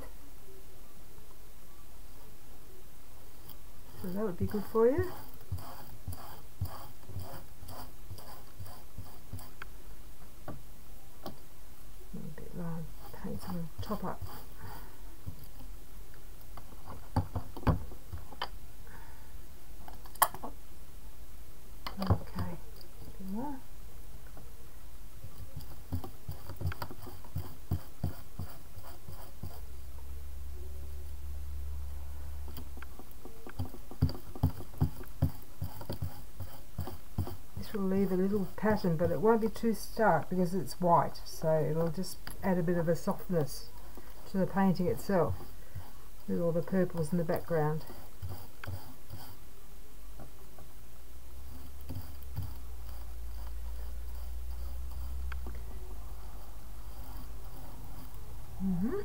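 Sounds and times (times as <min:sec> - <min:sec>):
brush dabbing paint: 0:03.4 - 0:09.7, 0:12.2 - 0:15.8, 0:25.2 - 0:29.7, 0:32.5 - 0:49.4, 0:51.4 - 0:58.4.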